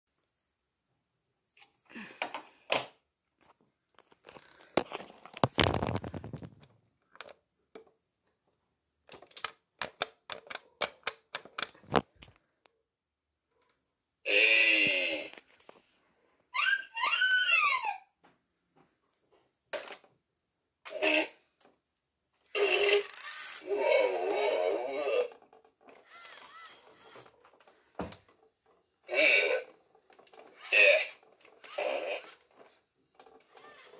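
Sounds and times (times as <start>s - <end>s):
toy robot motors clicking: 22.6s - 23.7s, 26.0s - 27.2s, 30.2s - 32.6s, 33.5s - 33.9s.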